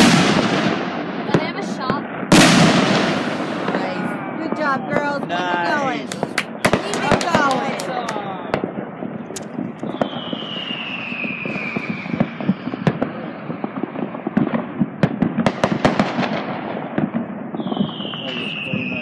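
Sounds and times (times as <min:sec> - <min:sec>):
fireworks crackling and popping: 0:00.0 - 0:19.0
falling firework whistle: 0:09.4 - 0:13.8, 0:17.5 - 0:19.0.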